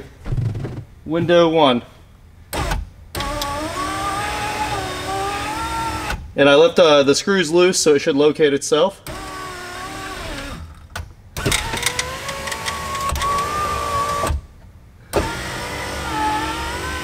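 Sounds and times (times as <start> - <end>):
window motor whining: 2.5 - 6.2, 9.1 - 10.8, 11.4 - 14.5, 15.1 - 17.0.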